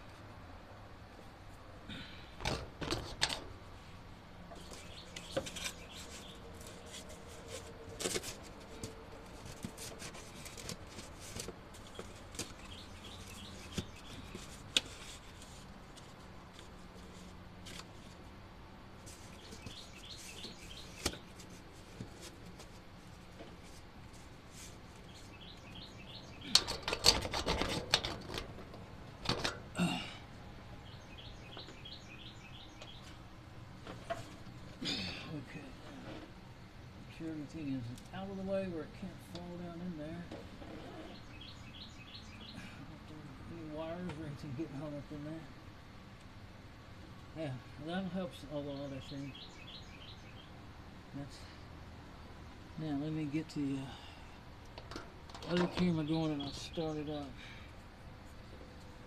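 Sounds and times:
birds chirping: 4.5s - 7.1s, 11.7s - 15.4s, 19.1s - 22.7s, 25.0s - 27.0s, 29.8s - 35.8s, 36.9s - 45.4s, 47.4s - 50.6s, 55.5s - 57.8s.

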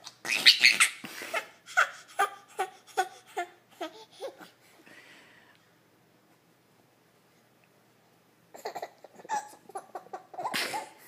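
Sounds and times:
baby laughing: 0.0s - 4.6s, 8.5s - 11.0s.

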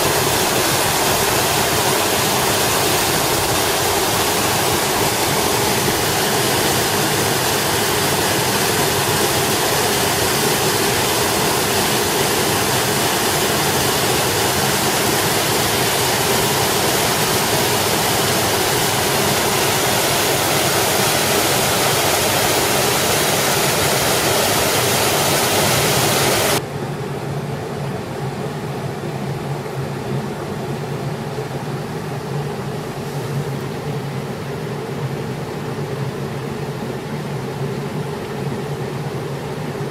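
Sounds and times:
waterfall and rushing stream: 0.0s - 26.7s.

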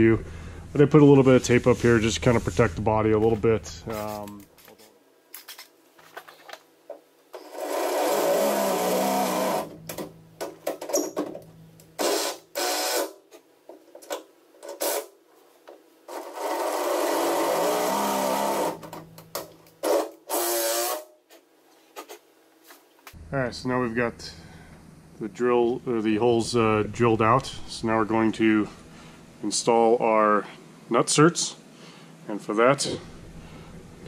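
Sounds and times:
cordless drill running: 7.4s - 9.8s, 12.0s - 13.2s, 16.1s - 18.9s, 19.8s - 21.1s.

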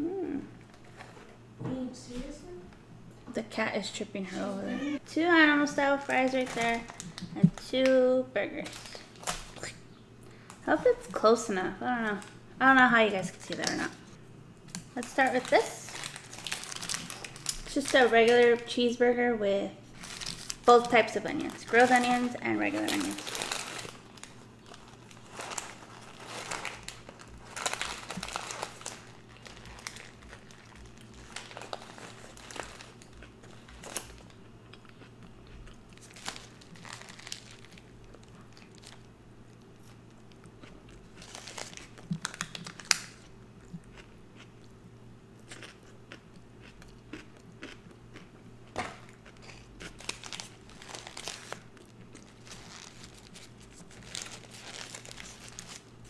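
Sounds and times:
paper wrapper crinkling: 14.7s - 18.7s, 19.9s - 34.4s, 35.9s - 39.1s, 41.1s - 43.2s, 49.5s - 56.0s
biting and chewing burger: 45.4s - 56.0s.

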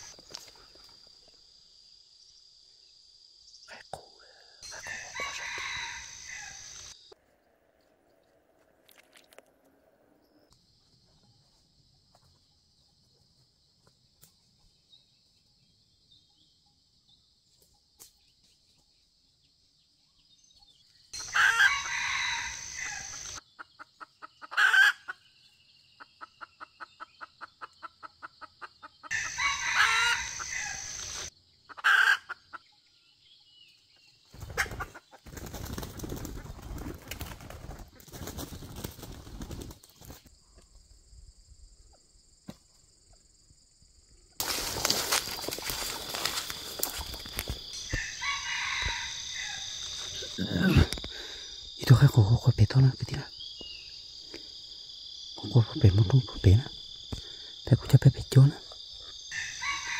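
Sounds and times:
junglefowl crowing: 4.6s - 6.9s, 21.2s - 23.4s, 24.2s - 25.2s, 26.0s - 32.6s, 44.5s - 51.4s, 59.2s - 59.9s
wings flapping: 34.4s - 40.3s
scuffling in dry leaves: 44.4s - 47.9s.

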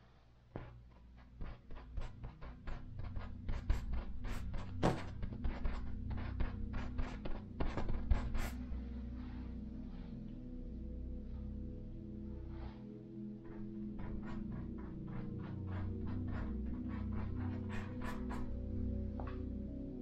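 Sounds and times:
low steady drone: 2.2s - 20.0s
painting tool tapping on canvas: 4.8s - 5.3s.

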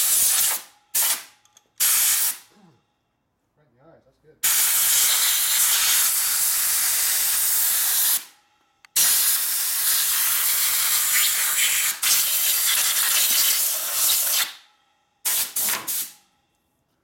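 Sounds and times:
cleaning spray hissing: 9.0s - 14.4s.

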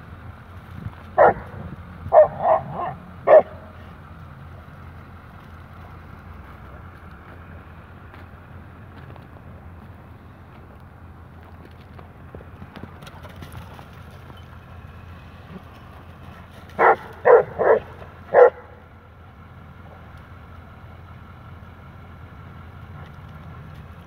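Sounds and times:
low background rumble: 0.0s - 24.0s
dog play barks: 1.2s - 3.7s, 16.8s - 18.8s.

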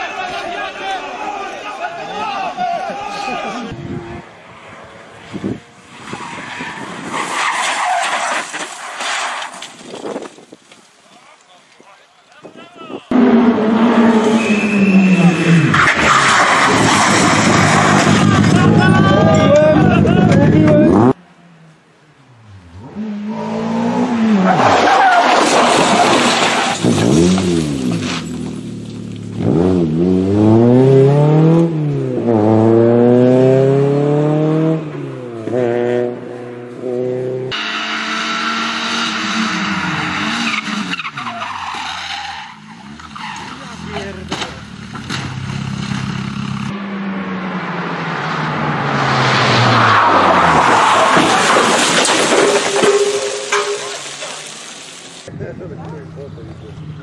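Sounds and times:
tyres skidding through leaves: 4.6s - 19.4s, 23.6s - 31.5s, 37.5s - 46.7s, 48.1s - 55.3s
leaves and gravel clattering: 7.4s - 12.5s, 25.2s - 29.3s, 51.0s - 55.3s
rally car engine revving: 13.1s - 21.2s, 22.2s - 53.7s.

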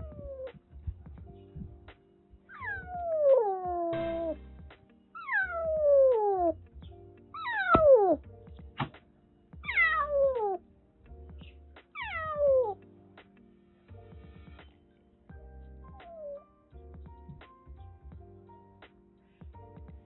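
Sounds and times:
kitten meowing: 2.5s - 4.4s, 5.2s - 6.6s, 7.4s - 8.2s, 9.7s - 10.6s, 12.0s - 12.8s.

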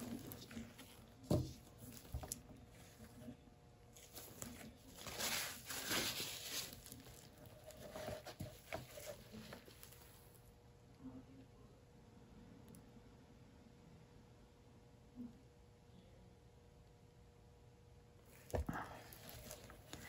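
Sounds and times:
soft rustle: 0.0s - 10.4s, 18.3s - 20.0s
straw set down knock: 1.2s - 2.4s.

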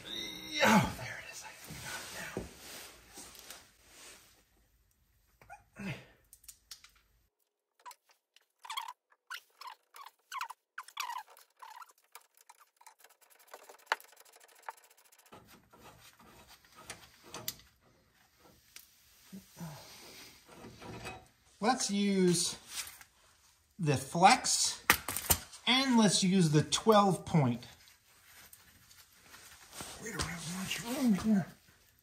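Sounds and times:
small metal scrapes: 8.6s - 19.0s.

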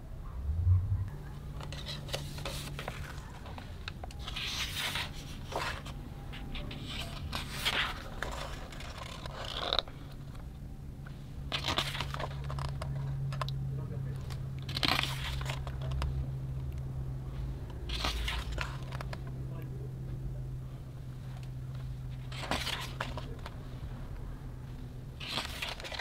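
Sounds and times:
book pages rustling: 1.5s - 10.5s, 11.5s - 13.5s, 14.2s - 16.2s, 17.4s - 19.4s, 21.2s - 23.9s, 24.6s - 26.0s.

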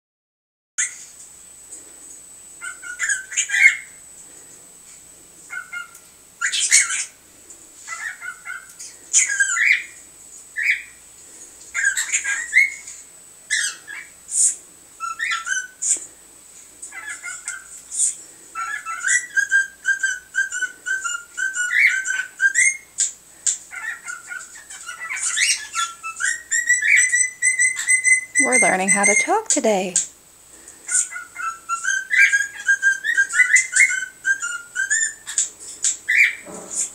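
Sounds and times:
cockatiels chirping and squawking: 2.6s - 4.0s, 5.5s - 7.2s, 7.8s - 10.0s, 10.6s - 11.0s, 11.7s - 16.0s, 16.8s - 29.2s, 30.8s - 36.9s
cockatiel whistled phrase: 26.2s - 30.0s.

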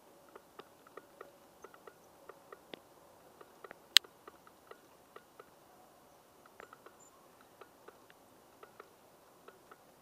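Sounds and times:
model train wheels clicking on rail joints: 0.3s - 2.8s, 6.4s - 10.0s.

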